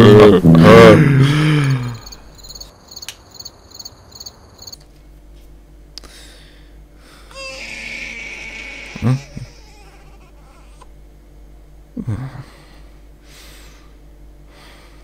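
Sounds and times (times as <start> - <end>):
crickets chirping: 1.4 - 4.9.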